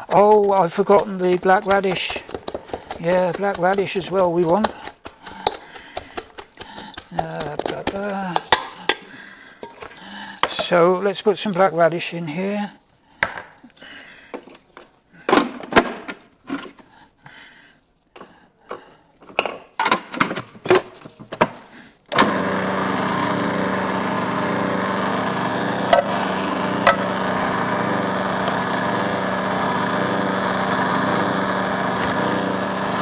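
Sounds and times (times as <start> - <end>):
food processor motor humming: 0.0 - 9.0, 22.1 - 33.0.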